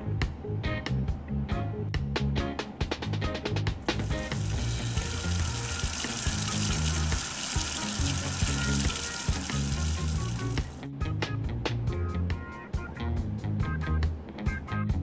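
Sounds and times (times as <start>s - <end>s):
music with bouncing bass line: 0.2s - 15.0s
running tap water: 3.8s - 10.8s.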